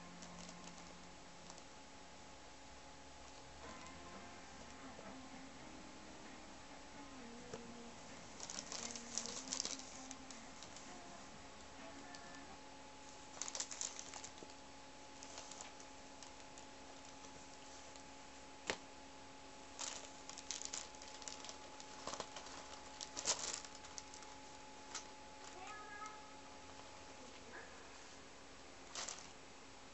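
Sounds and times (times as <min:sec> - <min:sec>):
faint steady hum: 0:00.0 - 0:29.9
cardboard rustling and scratching: 0:19.8 - 0:25.1.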